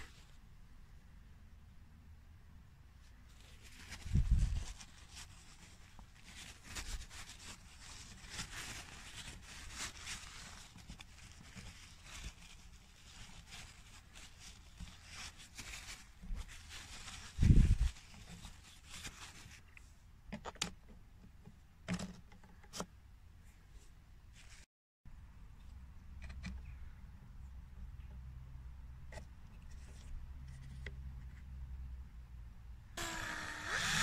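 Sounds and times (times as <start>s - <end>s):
paper tissue rubbing plastic: 3.3s - 19.7s.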